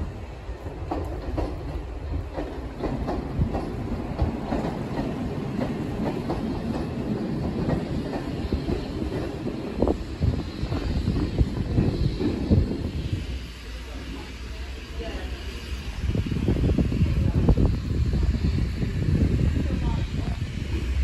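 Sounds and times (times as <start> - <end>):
train wheels clicking over rail joints: 0.4 - 14.3.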